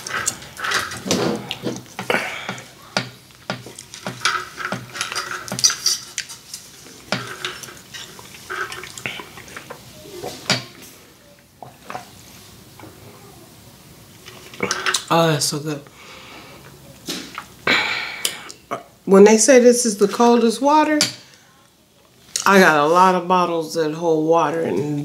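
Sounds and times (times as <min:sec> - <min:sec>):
drinking through a straw: 0:07.0 - 0:10.5.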